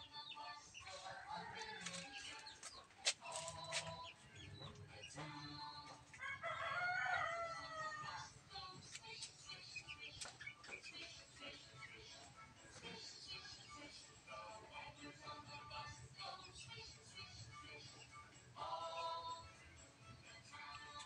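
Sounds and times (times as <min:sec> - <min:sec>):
rooster crowing: 0:01.0 - 0:02.2, 0:06.2 - 0:08.2.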